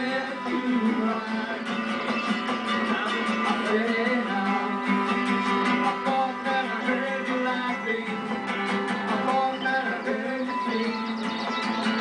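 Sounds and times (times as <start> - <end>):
man singing: 0.0 - 12.0
mandolin: 0.0 - 12.0
strummed acoustic guitar: 0.0 - 12.0.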